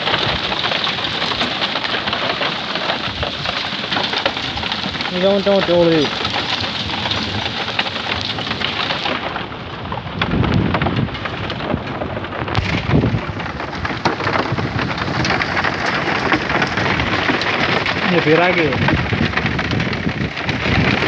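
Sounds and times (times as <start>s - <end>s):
heavy rain and hail falling: 0.0s - 21.0s
low rumbles: 0.0s - 21.0s.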